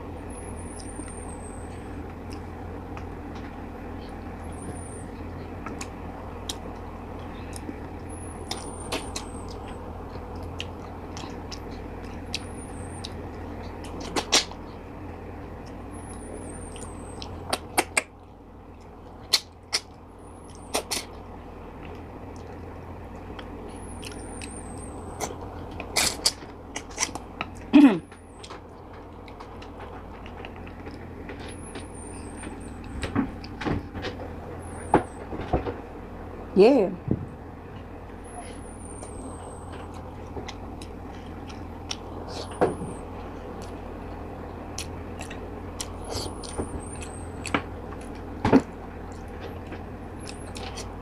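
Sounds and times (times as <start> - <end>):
steady low hum: 0.0 - 51.0.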